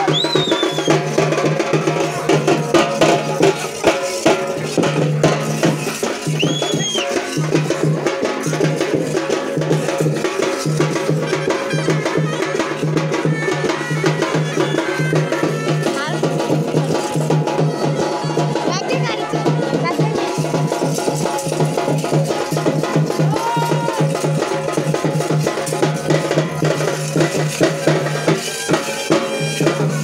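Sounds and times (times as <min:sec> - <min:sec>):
music with fast loud drumming: 0:00.0 - 0:30.0
rising and falling whistle: 0:00.1 - 0:01.0.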